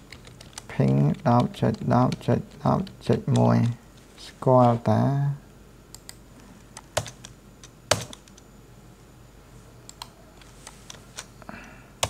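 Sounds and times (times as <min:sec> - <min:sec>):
computer keyboard keystrokes: 0:00.0 - 0:03.8, 0:06.8 - 0:08.4.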